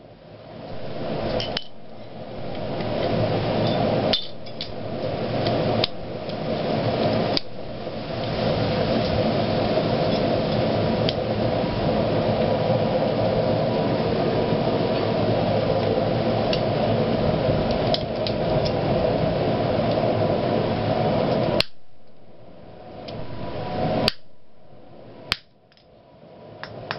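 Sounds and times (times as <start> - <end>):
faint hum: 0.0 - 26.9.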